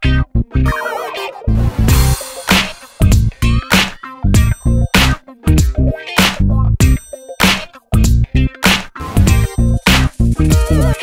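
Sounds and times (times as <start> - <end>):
electronic music with heavy bass: 0.0 - 11.0.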